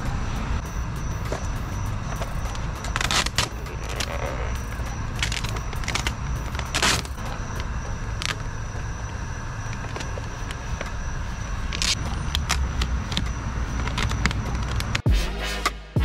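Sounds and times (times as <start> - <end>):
steady low rumble: 0.0 - 15.1
vinyl film crinkling: 2.1 - 8.9, 9.7 - 15.0.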